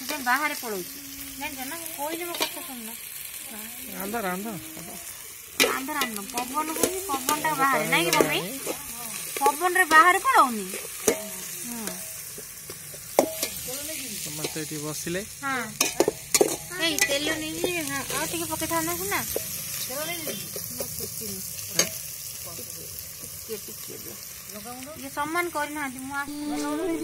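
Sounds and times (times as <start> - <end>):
people talking: 0.0 - 5.0, 5.6 - 10.8, 23.5 - 27.0
onions sizzling in oil: 0.0 - 27.0
metal spatula scraping pot: 2.2 - 2.7, 4.6 - 13.7.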